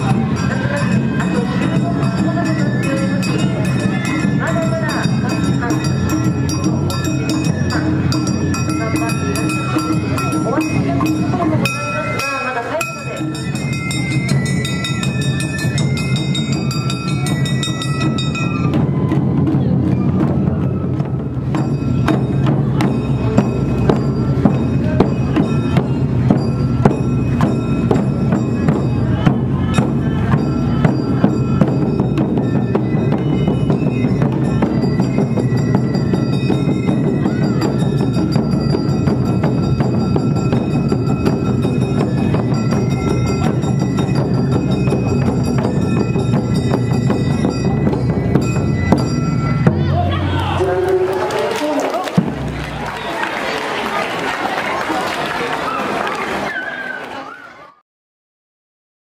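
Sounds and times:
drums and struck metal: 0.0 - 53.5.

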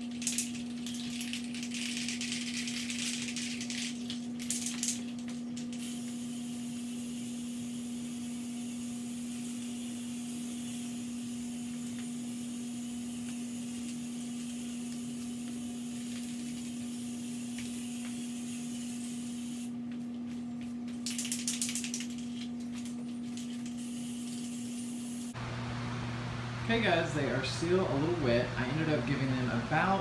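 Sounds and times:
steady low hum: 0.0 - 30.0
spray paint can hissing: 5.7 - 19.8, 23.6 - 25.4.

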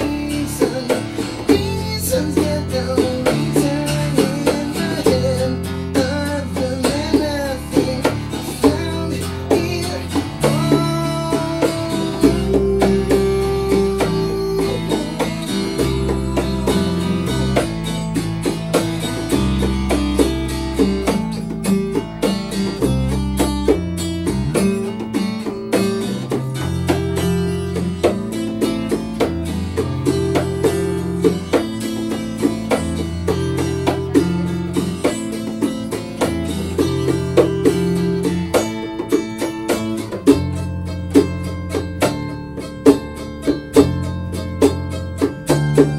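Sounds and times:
bongos played by hand: 0.0 - 45.9
electric bass: 0.0 - 45.9
strummed acoustic guitar: 0.0 - 45.9.

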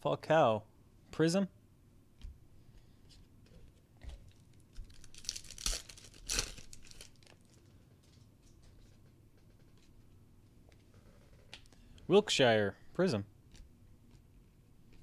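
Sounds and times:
foil wrapper tearing and crinkling: 4.8 - 7.6.

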